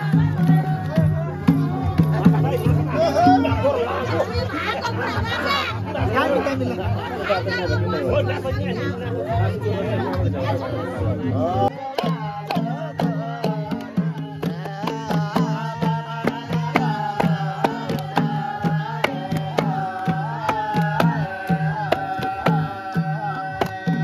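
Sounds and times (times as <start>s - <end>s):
frame drum beat: 0.0s - 6.1s, 11.9s - 24.0s
voices singing folk song: 0.0s - 24.0s.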